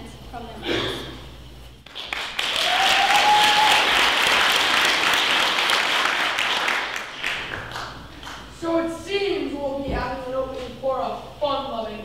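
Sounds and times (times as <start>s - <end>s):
audience applauding: 1.9s - 8.5s.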